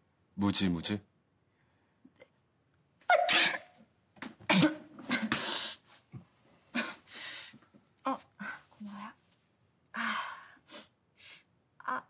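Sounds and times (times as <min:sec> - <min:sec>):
woman sneezing: 0:03.1 - 0:03.8.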